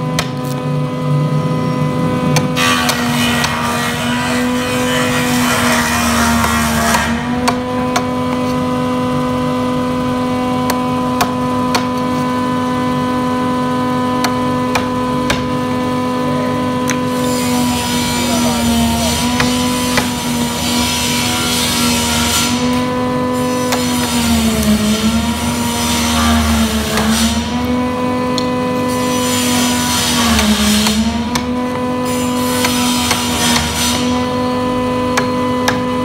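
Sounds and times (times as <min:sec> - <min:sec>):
hammer striking chisel into wood: 0:06.4 - 0:08.4, 0:10.6 - 0:12.1, 0:14.1 - 0:15.7, 0:18.9 - 0:20.5, 0:26.0 - 0:27.4, 0:30.0 - 0:34.3, 0:35.1 - 0:36.0.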